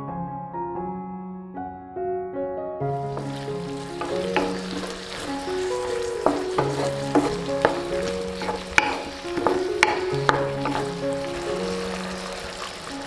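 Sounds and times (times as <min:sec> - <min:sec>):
background music: 0:02.7 - 0:13.0
vegetables sizzling in oil: 0:03.1 - 0:13.0
spatula clicking against pan: 0:06.0 - 0:11.5.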